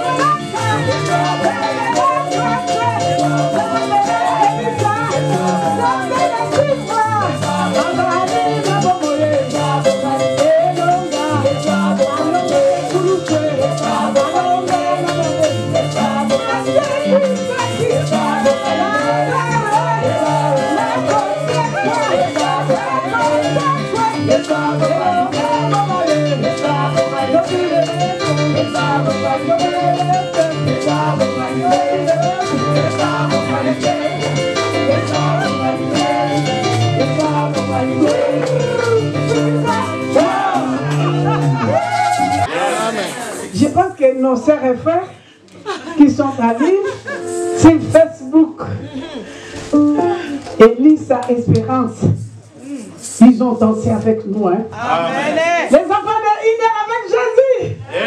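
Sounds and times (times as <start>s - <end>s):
woman singing into a microphone: 0.0s - 42.0s
repeating bass line: 0.0s - 42.5s
voices singing along: 0.0s - 43.5s
fast steady percussion: 0.0s - 44.9s, 46.0s - 48.3s.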